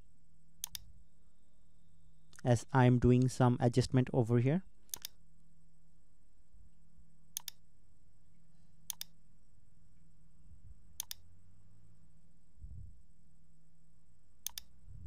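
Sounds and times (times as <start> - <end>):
faint low hum: 0.0 - 15.0
mouse button clicking: 0.6 - 0.9, 7.4 - 7.6, 8.9 - 9.1, 11.0 - 11.2, 14.4 - 14.7.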